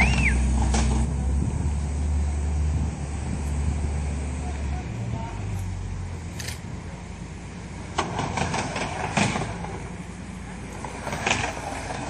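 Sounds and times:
low rumble: 0:00.0 - 0:06.9
skateboard wheels rolling on ramp: 0:07.9 - 0:12.0.

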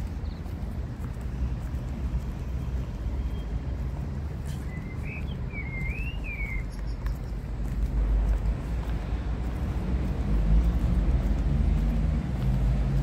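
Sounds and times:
heels clicking on tarmac: 0:00.0 - 0:13.0
steady low rumble: 0:06.7 - 0:13.0.

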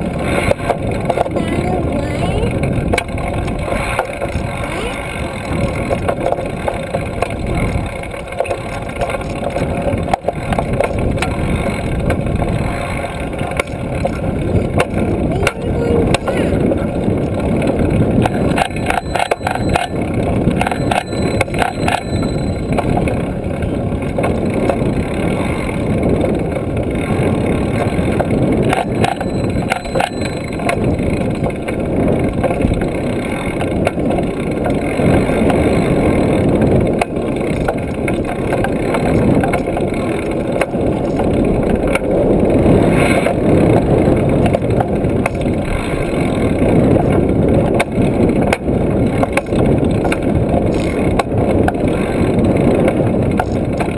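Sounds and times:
bike rolling and rattling: 0:00.0 - 0:53.9
sharp rattles: 0:00.0 - 0:53.9
wind buffeting microphone: 0:00.0 - 0:53.9.

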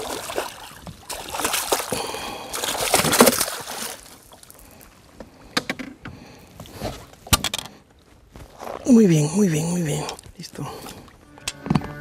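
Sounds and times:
fish splashing in water: 0:00.0 - 0:04.7.

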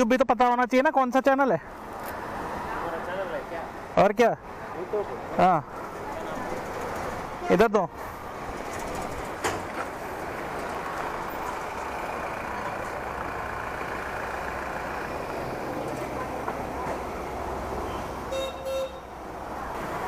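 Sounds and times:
motor vehicle running: 0:04.5 - 0:20.0.

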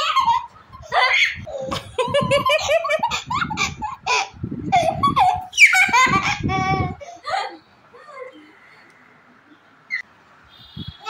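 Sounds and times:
little girl giggling: 0:00.0 - 0:07.6.

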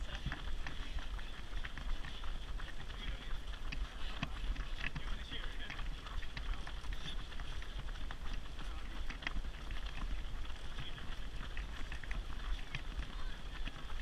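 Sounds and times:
buggy rolling on tarmac: 0:00.0 - 0:14.0
running footsteps: 0:00.0 - 0:14.0.

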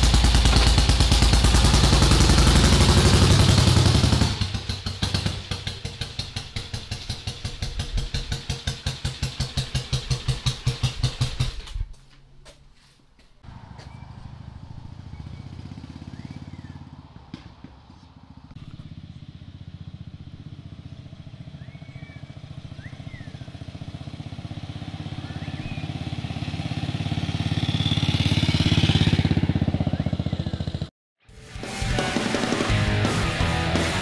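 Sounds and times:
motorcycle engine passing: 0:00.0 - 0:11.6, 0:13.4 - 0:30.9
faint bird chirps: 0:15.0 - 0:17.0, 0:21.4 - 0:23.7, 0:25.1 - 0:26.1.

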